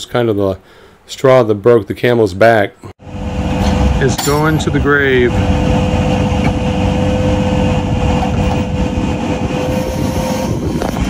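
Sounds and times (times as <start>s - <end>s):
tow truck engine running: 3.0s - 10.4s
winch whining: 3.0s - 11.0s.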